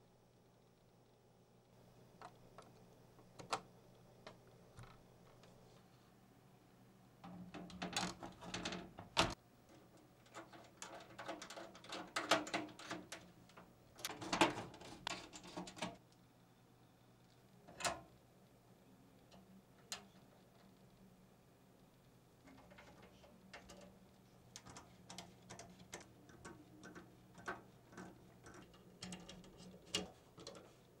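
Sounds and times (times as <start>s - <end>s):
clatter and scraping of metal parts: 7.2s - 16.0s, 22.5s - 30.9s.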